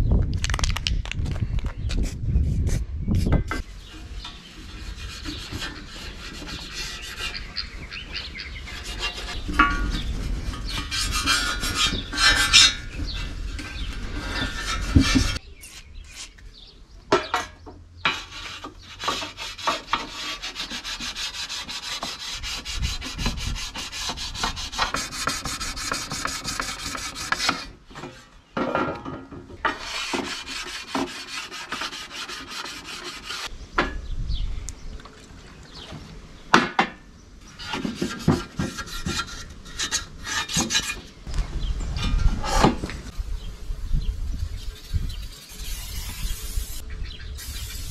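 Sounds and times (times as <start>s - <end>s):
hand tool scraping metal: 3.5s - 7.8s, 8.6s - 16.4s, 17.2s - 28.4s, 29.0s - 33.5s, 37.5s - 41.2s.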